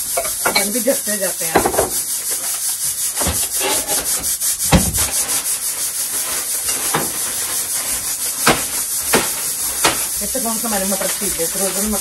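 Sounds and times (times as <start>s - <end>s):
steady hiss: 0.0s - 12.0s
kitchen things knocking: 0.2s - 5.4s, 6.3s - 12.0s
plastic bag rustling: 3.1s - 12.0s.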